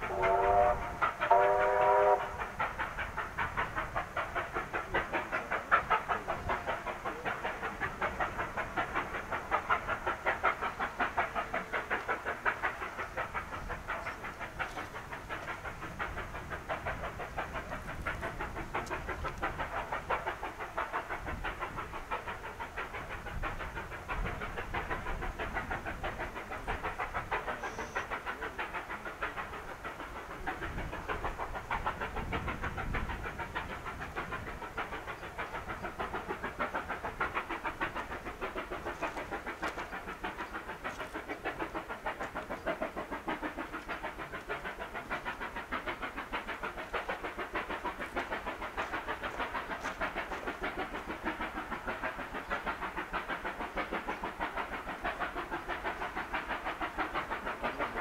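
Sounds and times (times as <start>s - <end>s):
train whistle blast: 0.0s - 2.4s
steam locomotive exhaust beating: 0.0s - 58.0s.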